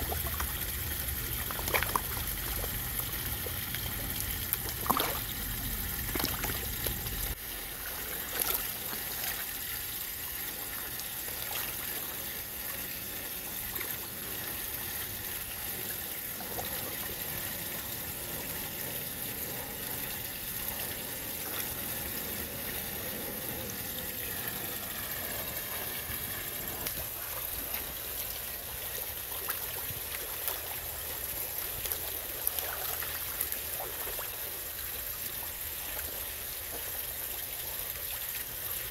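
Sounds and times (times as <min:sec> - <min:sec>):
small splashes of fish: 0:00.0 - 0:09.7, 0:26.0 - 0:35.2
water trickling: 0:00.0 - 0:38.9.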